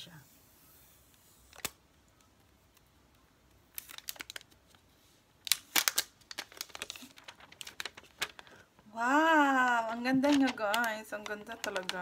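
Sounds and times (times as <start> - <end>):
plastic film crinkling: 3.5 - 8.9, 9.5 - 12.0.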